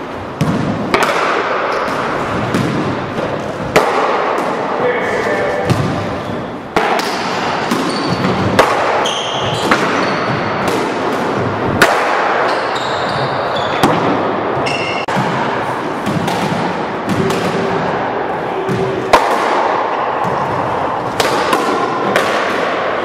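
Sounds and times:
sneaker squeaks on wooden floor: 0:07.7 - 0:10.6, 0:12.5 - 0:14.0, 0:14.6 - 0:15.1.

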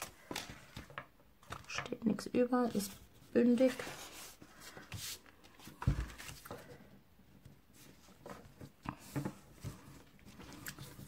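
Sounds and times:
paper rustling and tapping: 0:00.0 - 0:02.0.

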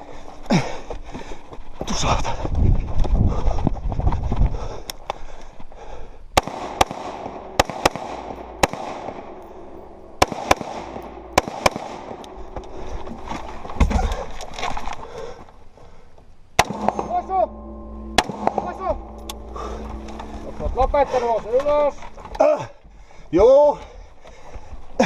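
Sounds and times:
rifle shots: 0:06.4 - 0:12.4, 0:16.6 - 0:17.1.

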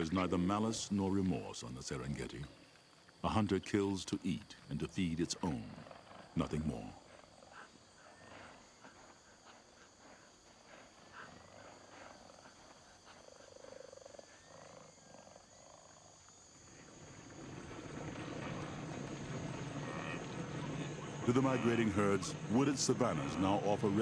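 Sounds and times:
low rushing hiss: 0:16.5 - 0:24.0
low animal call: 0:16.7 - 0:24.0.

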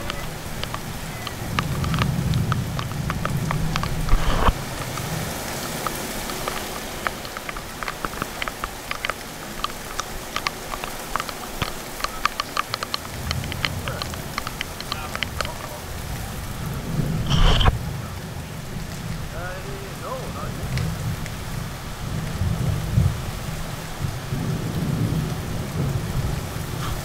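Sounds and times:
heavy rain falling: 0:00.0 - 0:27.0
raindrops ticking near microphone: 0:00.0 - 0:27.0.

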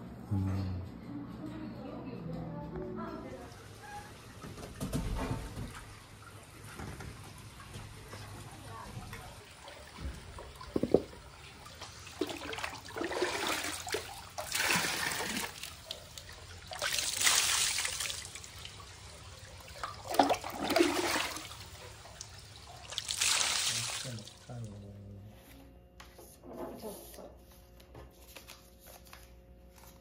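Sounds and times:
water pouring and splashing: 0:05.3 - 0:24.5.

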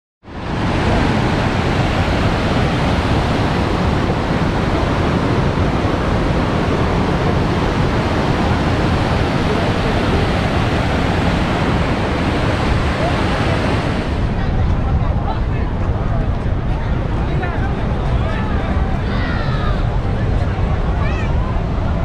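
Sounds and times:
river rapids roaring: 0:00.3 - 0:14.4.

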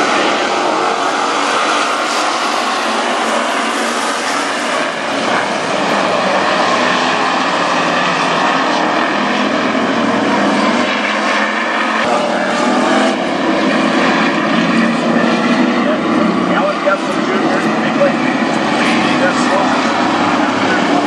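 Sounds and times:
race car engines droning: 0:00.0 - 0:21.0.

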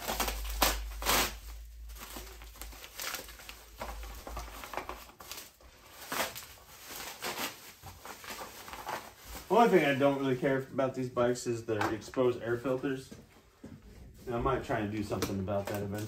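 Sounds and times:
plastic wrap crinkling: 0:00.0 - 0:10.6, 0:14.2 - 0:16.0.

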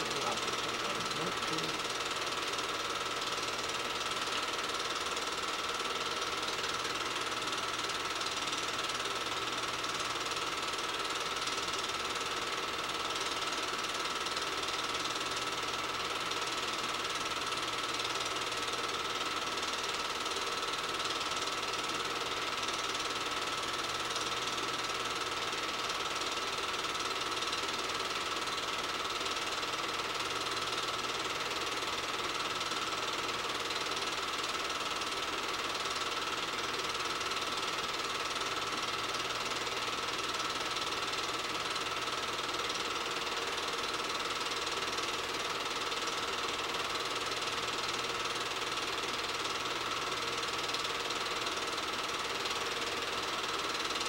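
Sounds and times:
thin steady whine: 0:00.0 - 0:18.3
film projector clatter: 0:00.0 - 0:54.0.

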